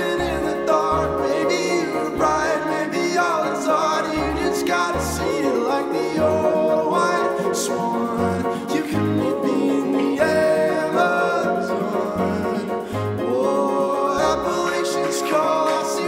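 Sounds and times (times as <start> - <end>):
person singing over instruments: 0.0 - 16.0
bass beat: 0.2 - 1.3, 2.1 - 2.6, 4.2 - 5.5.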